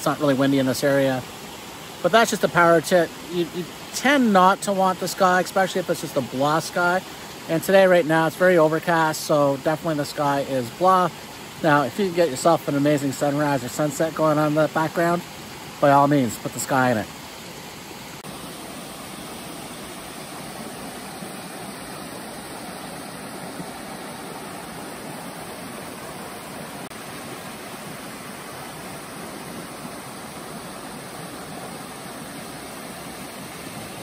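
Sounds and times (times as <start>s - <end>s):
waterfall rushing over rocks: 0.0s - 34.0s.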